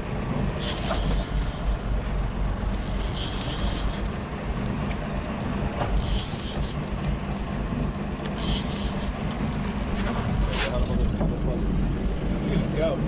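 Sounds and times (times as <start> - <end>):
boat engine running: 0.0 - 13.0
fishing reel rasping: 0.6 - 1.8, 2.7 - 4.2, 6.0 - 6.9, 8.4 - 9.9.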